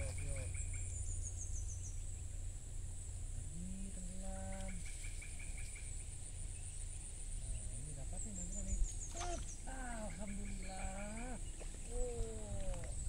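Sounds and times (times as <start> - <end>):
birds chirping: 0.0 - 13.0
high insect drone: 0.0 - 13.0
low drawn-out animal call: 3.4 - 6.1, 7.3 - 13.0.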